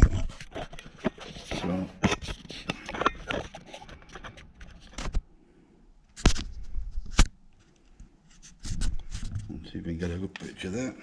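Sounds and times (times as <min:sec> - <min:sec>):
metal parts clicking and scraping: 0:00.0 - 0:05.2.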